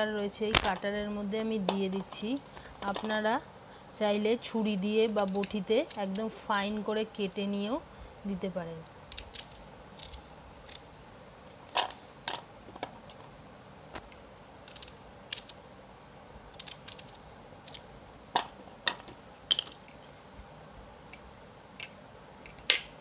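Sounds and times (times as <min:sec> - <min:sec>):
onion pieces clicking in chopper: 0:05.0 - 0:06.8, 0:14.7 - 0:15.6, 0:16.5 - 0:17.8.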